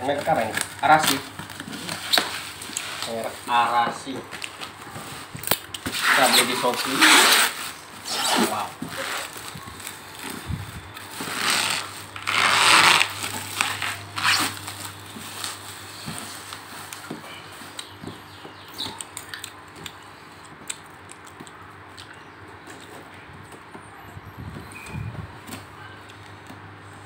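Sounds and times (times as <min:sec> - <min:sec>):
plastic wrapping crinkling: 0:00.0 - 0:18.2.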